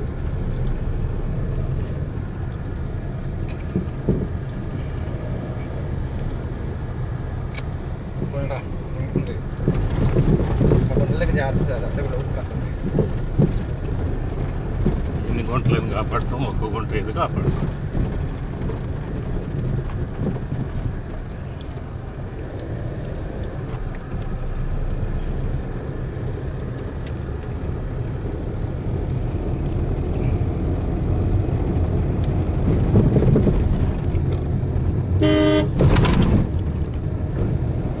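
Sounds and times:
car engine and tyre rumble: 0.0s - 38.0s
vehicle horn honk: 35.2s - 35.8s.

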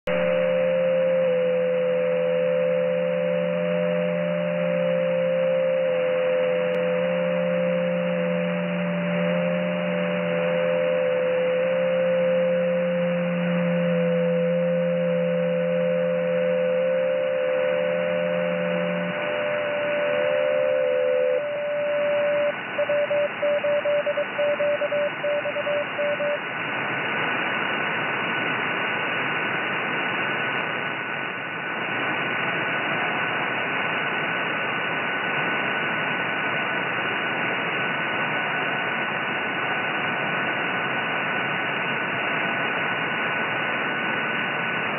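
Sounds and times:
steady digital-mode tones: 0.1s - 26.4s
steady higher whistle: 0.1s - 26.4s
radio band hiss: 0.1s - 44.9s.

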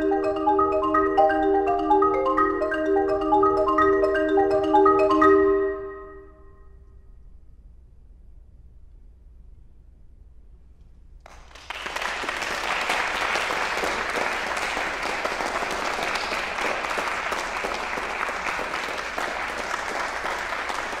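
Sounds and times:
audience applauding: 11.3s - 21.0s.

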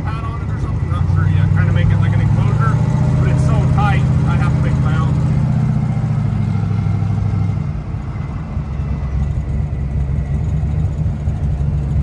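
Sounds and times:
race car engine droning: 0.0s - 12.0s.

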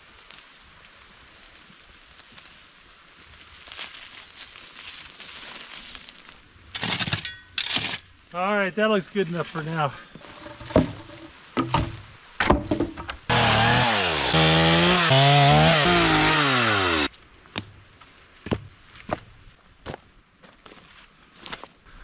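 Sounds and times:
wood being handled knocks: 10.2s - 13.2s
chainsaw cutting log: 13.3s - 17.1s.

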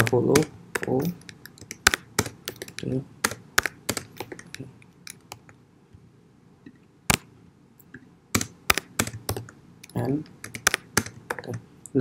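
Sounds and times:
computer keyboard keystrokes: 0.0s - 5.5s, 8.4s - 11.6s.

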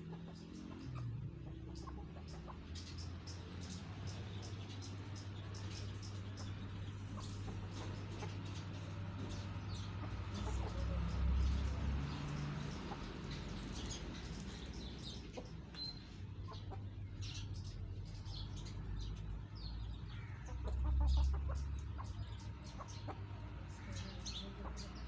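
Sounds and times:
chickens clucking: 0.0s - 25.0s.

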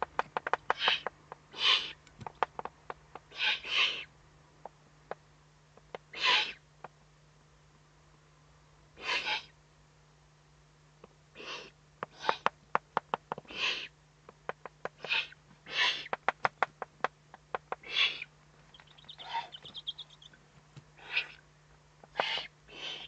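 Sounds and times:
owl chicks hissing begging calls: 0.7s - 2.1s, 3.1s - 4.2s, 6.1s - 6.7s, 9.0s - 9.6s, 11.4s - 12.6s, 13.4s - 14.0s, 14.9s - 16.3s, 17.7s - 20.4s, 21.0s - 23.0s.

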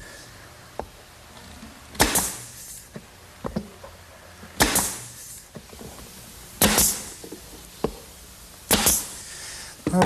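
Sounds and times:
nail gun shots with hiss: 1.9s - 3.0s, 4.6s - 5.6s, 6.6s - 7.2s, 8.6s - 9.4s.

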